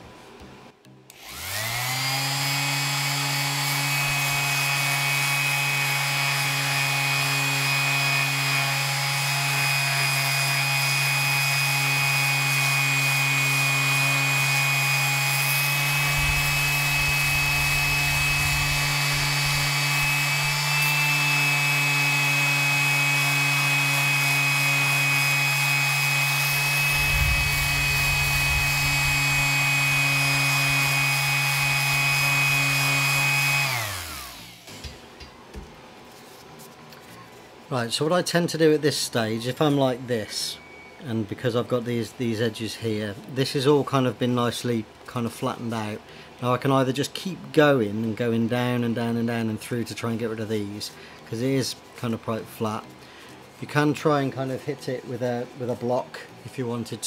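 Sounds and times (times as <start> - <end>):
orbital sander humming and whining: 1.1 - 35.0
low rubbing rumble: 16.0 - 20.6, 26.7 - 30.7.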